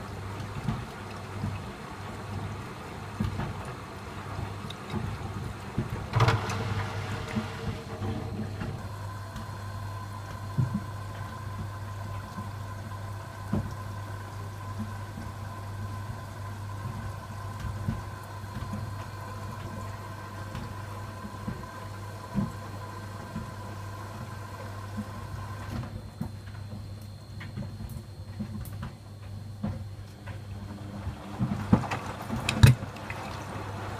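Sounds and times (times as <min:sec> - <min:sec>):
washing machine motor humming: 0:00.0 - 0:33.9
water sloshing in drum: 0:00.0 - 0:33.9.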